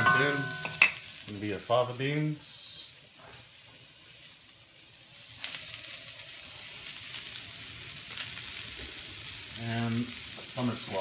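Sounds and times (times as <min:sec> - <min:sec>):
vegetables sizzling in a wok: 0:00.0 - 0:11.0.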